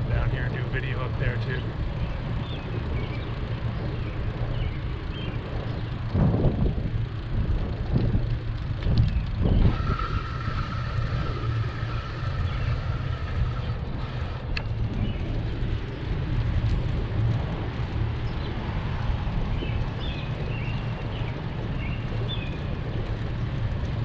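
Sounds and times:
wind and road noise rumble: 0:00.0 - 0:24.0
faint high whine: 0:09.4 - 0:15.1.

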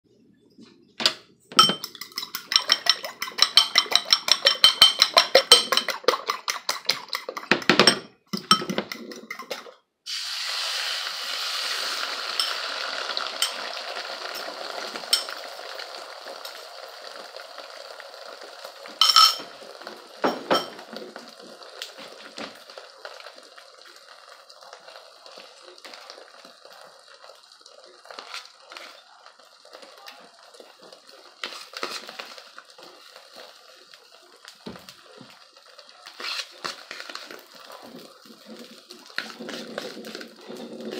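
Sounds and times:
utensil beating eggs in bowl: 0:01.6 - 0:09.7, 0:36.0 - 0:40.9
eggs sizzling in frying pan: 0:01.6 - 0:40.9.

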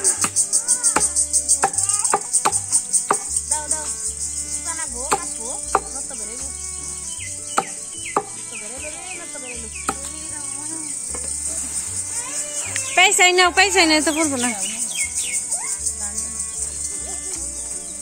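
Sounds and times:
blade chopping stalks on wood: 0:00.0 - 0:03.9, 0:04.9 - 0:08.6, 0:09.8 - 0:10.3
birds calling: 0:00.0 - 0:18.0
insects chirping: 0:00.0 - 0:18.0.

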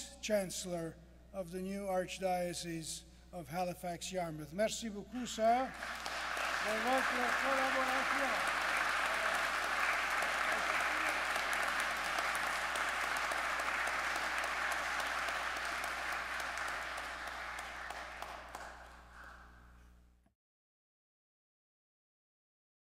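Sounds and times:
congregation applauding: 0:05.5 - 0:19.6.

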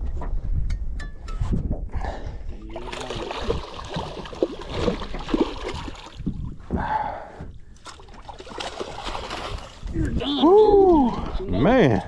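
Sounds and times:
fish splashing in water: 0:02.8 - 0:06.2, 0:07.9 - 0:09.9.

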